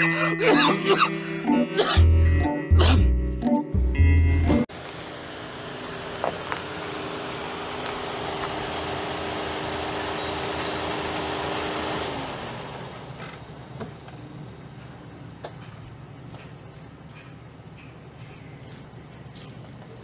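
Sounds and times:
car engine and tyre noise: 4.7 - 20.0.

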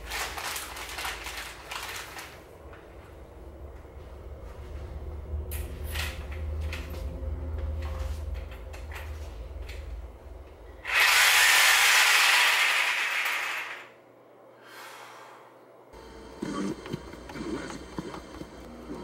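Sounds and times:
low steady rumble: 2.4 - 10.9
reciprocating saw running: 10.8 - 13.9.

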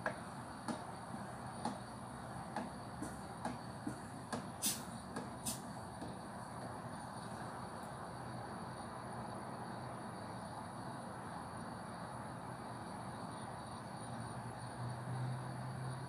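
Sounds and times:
gas burner hissing: 0.0 - 8.0.

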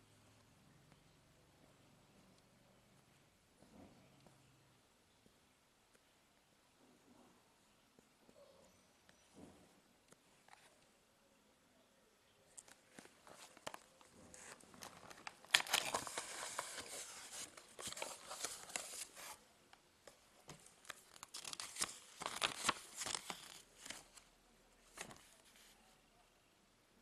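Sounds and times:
cardboard and paper rustling: 12.9 - 19.4, 20.5 - 24.3, 24.9 - 25.8.

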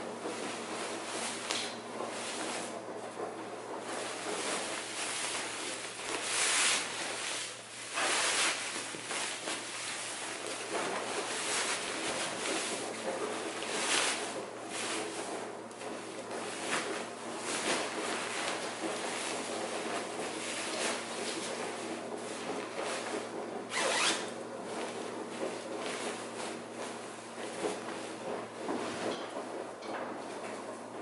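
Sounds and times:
fabric rustling and brushing: 0.0 - 31.0.

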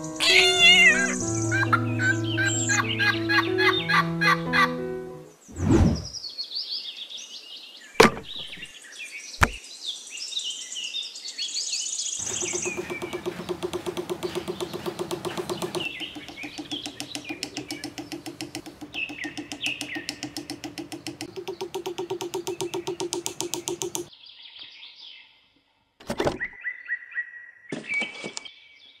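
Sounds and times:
birds chirping: 0.0 - 4.7, 7.7 - 9.6, 12.2 - 24.1
sharp knock: 8.0 - 8.6, 9.4 - 9.6, 12.2 - 24.1
rapid pulsing buzz: 12.2 - 24.1.

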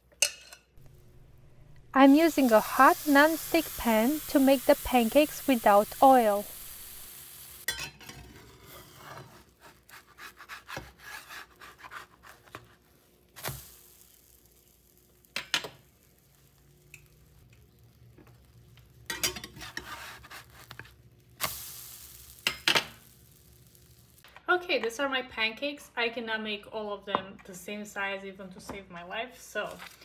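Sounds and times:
batter sizzling in a pan: 0.8 - 24.2
metal spatula scraping pan: 7.7 - 12.8, 19.1 - 20.9.

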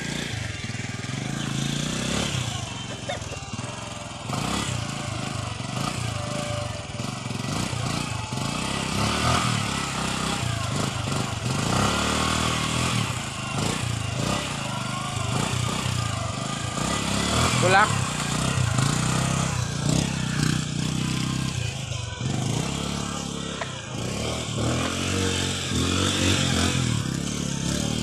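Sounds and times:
motorcycle engine revving: 0.0 - 28.0.

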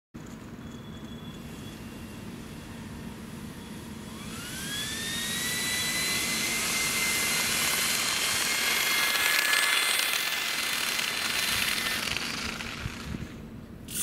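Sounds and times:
fans whining at speed: 0.2 - 14.0
lower whine: 0.2 - 14.0
rushing air hiss: 9.4 - 14.0.

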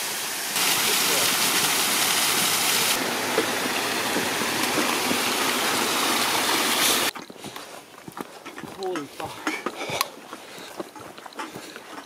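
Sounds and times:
waterfall and brook rushing: 0.0 - 7.1.

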